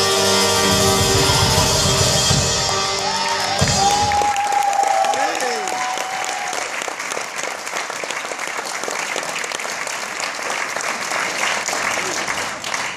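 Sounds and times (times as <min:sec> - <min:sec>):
audience applauding: 0:01.1 - 0:12.9.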